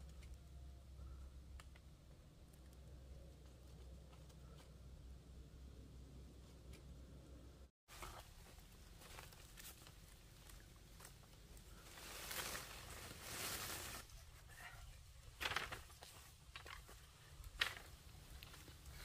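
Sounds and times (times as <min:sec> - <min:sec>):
palm fronds rustling: 0:07.9 - 0:19.0.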